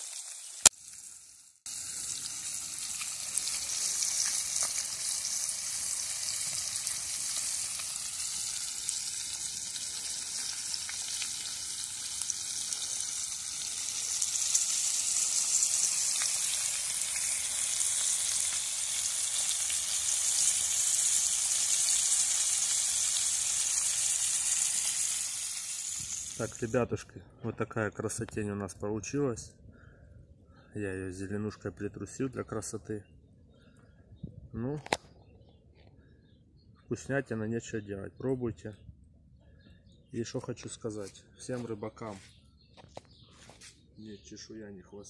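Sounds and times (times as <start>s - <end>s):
fish sizzling in oil: 0.0s - 26.7s.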